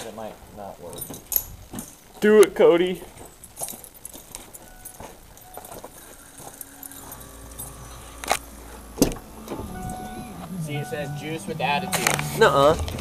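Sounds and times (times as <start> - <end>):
faint steady tones: 0.0 - 13.0
keys jangling in ignition: 0.9 - 2.0, 3.2 - 10.2
low vehicle hum: 3.3 - 13.0.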